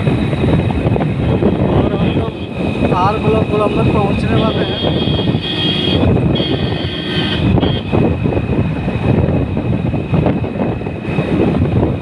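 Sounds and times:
car road rumble: 0:00.0 - 0:12.0
wind buffeting microphone: 0:00.0 - 0:12.0.

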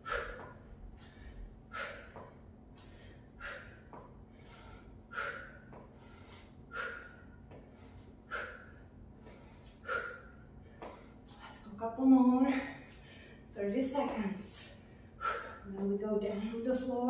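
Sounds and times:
woman's sharp breaths: 0:00.0 - 0:11.4, 0:12.5 - 0:13.5, 0:14.6 - 0:15.8.

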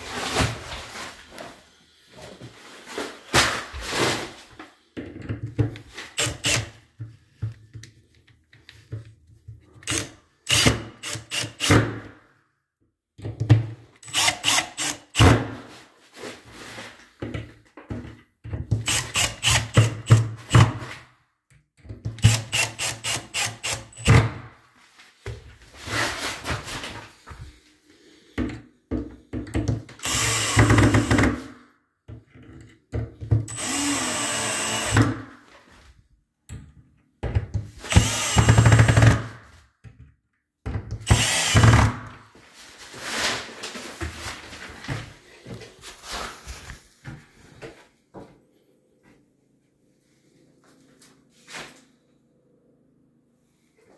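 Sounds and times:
power drill driving screws: 0:06.1 - 0:06.7, 0:09.8 - 0:11.7, 0:14.0 - 0:15.2, 0:18.8 - 0:20.2, 0:22.2 - 0:24.2, 0:30.0 - 0:31.3, 0:33.5 - 0:35.2, 0:37.8 - 0:39.3, 0:41.0 - 0:42.1.

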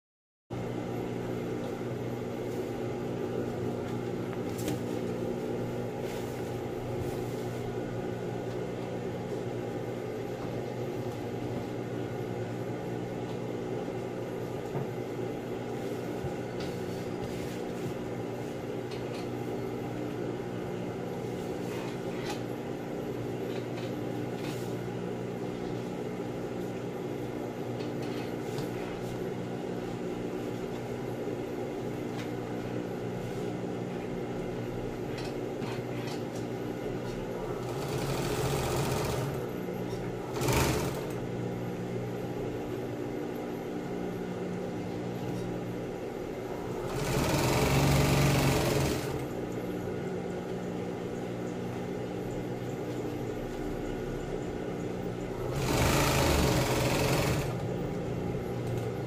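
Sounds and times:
sewing machine motor humming: 0:37.4 - 0:39.5, 0:40.2 - 0:41.2, 0:46.6 - 0:49.3, 0:55.4 - 0:57.9.

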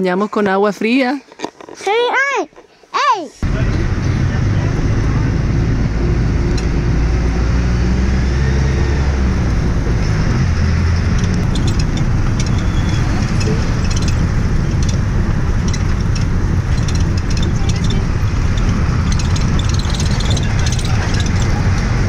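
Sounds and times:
vehicle engine and road rumble: 0:03.4 - 0:22.0
light clicks and rattles: 0:11.1 - 0:22.0.

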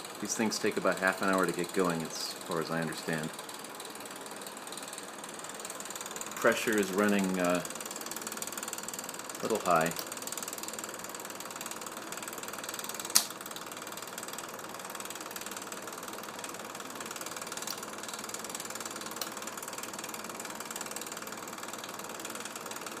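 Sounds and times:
sharp click: 0:13.1 - 0:13.4.

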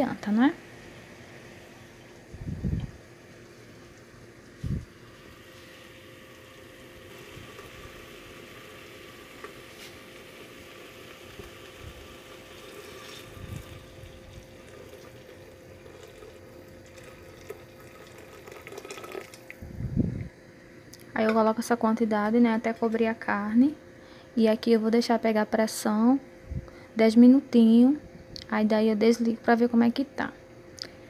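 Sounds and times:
boiling water pouring into a pot: 0:05.0 - 0:19.6.

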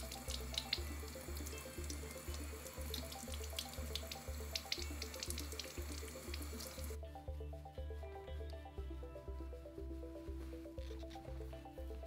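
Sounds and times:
tap water running and splashing: 0:00.0 - 0:07.0
background music with steady beat: 0:00.0 - 0:12.0.

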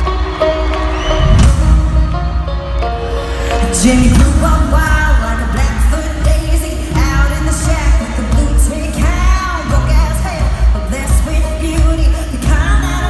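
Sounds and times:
country-pop band music: 0:00.0 - 0:13.0
woman singing: 0:03.6 - 0:13.0.

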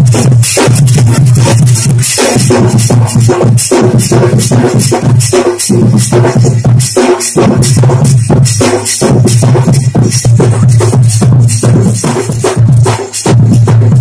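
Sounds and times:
loud dance music with drum beat: 0:00.0 - 0:14.0.

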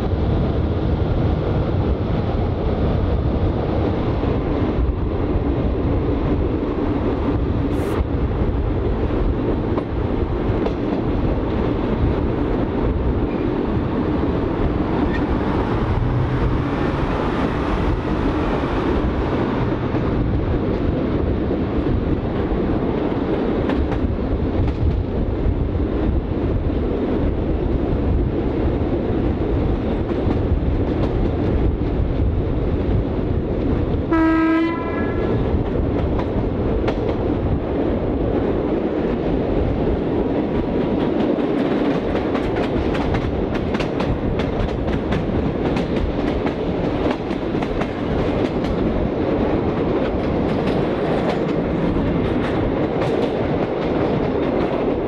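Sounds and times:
railmotor engine and wheels rumbling: 0:00.0 - 0:55.0
train horn blast: 0:34.1 - 0:35.4
wheels clicking over rail joints: 0:40.4 - 0:55.0.

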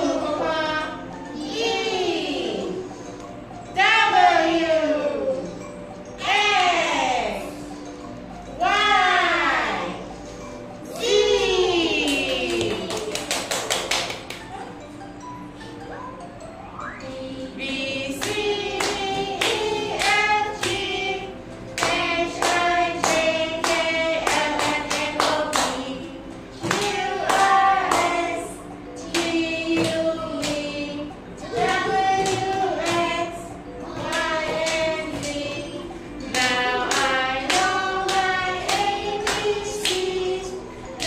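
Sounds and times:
hands clapping: 0:12.0 - 0:14.7
person singing children's song: 0:17.0 - 0:41.0.

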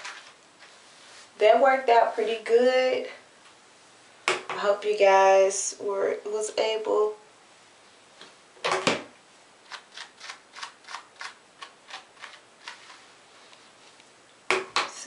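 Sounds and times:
sharp handling knocks: 0:08.6 - 0:09.1
hairbrush brushing wig hair: 0:11.9 - 0:14.0.

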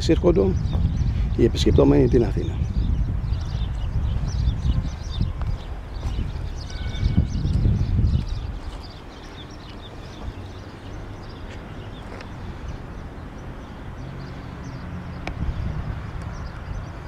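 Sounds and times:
faint bird chirps: 0:06.0 - 0:10.4.

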